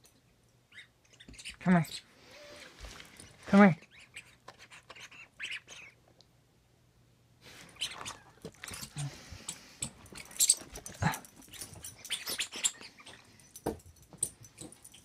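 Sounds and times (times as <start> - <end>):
dog playing with toy: 7.6 - 15.0.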